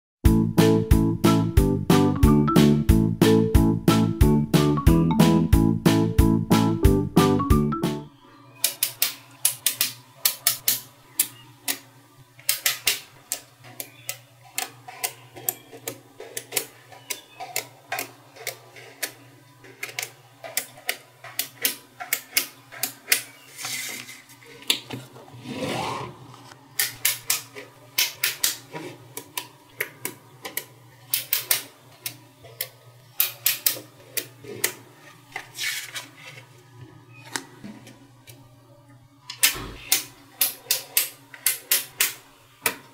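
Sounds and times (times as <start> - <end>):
rubbing scrape: 25.3 - 26.6.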